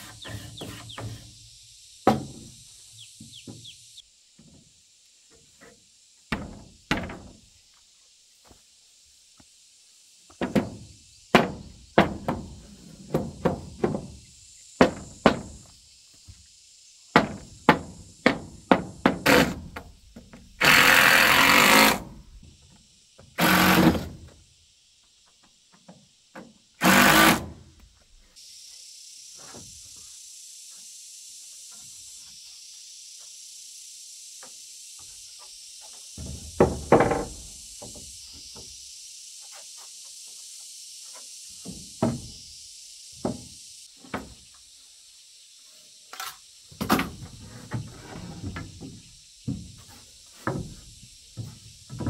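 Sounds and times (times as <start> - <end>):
steady high hiss: 0.0 - 52.0
wooden mallet knocking boards: 2.1 - 2.5, 10.4 - 14.2, 14.8 - 15.6, 17.2 - 19.8, 36.2 - 37.4
cordless drill driving screws: 20.6 - 22.0, 23.4 - 24.0, 26.8 - 27.4.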